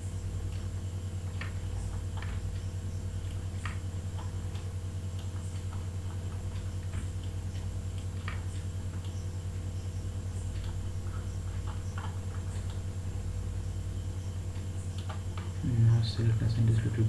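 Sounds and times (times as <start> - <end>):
steady low hum: 0.0 - 17.0
computer mouse clicking: 1.3 - 9.2, 11.6 - 12.8.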